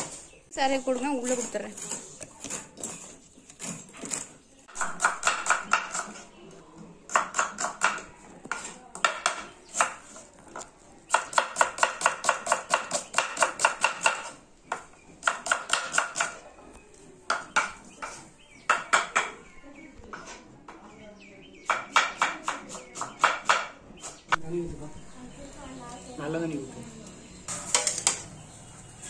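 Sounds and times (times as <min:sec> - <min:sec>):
knife chopping on wooden board: 0:01.8 - 0:06.2, 0:07.1 - 0:10.2, 0:11.1 - 0:16.4.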